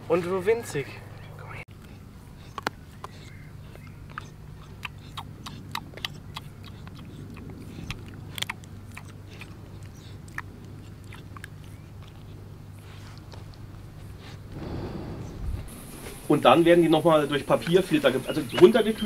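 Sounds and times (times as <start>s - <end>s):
low hum: 0.8s - 17.1s
puppy chewing wet clicks: 1.2s - 13.8s.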